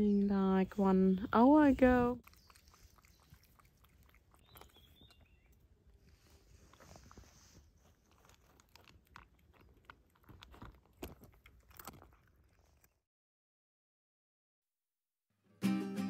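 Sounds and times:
cat crunching dry kibble: 0:02.2 - 0:13.0.

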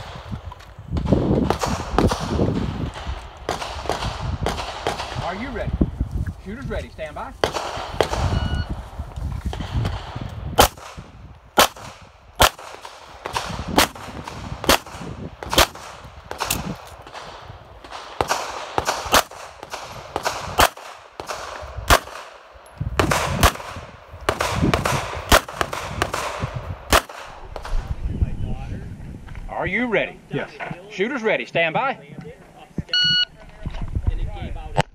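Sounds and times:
pistol shots with echo: 0:01.0 - 0:05.7, 0:07.4 - 0:08.5, 0:09.5 - 0:27.8.

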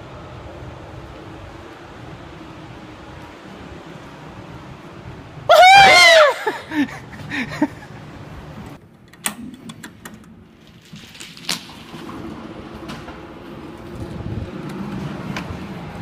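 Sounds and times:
woman screaming: 0:05.5 - 0:06.8
sharp clicks and knocks: 0:08.6 - 0:10.4.

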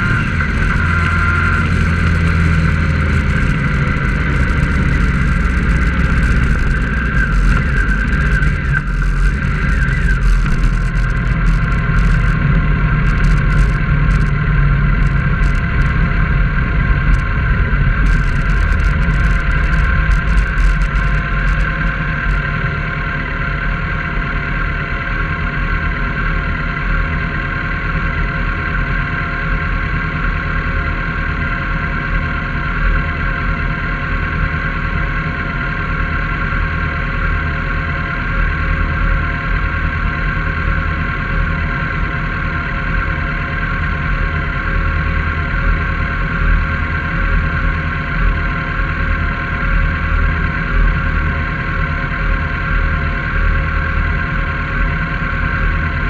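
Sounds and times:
sharp high clicks: 0:00.0 - 0:16.0, 0:18.0 - 0:22.4
vehicle engine idling: 0:00.0 - 0:56.0.

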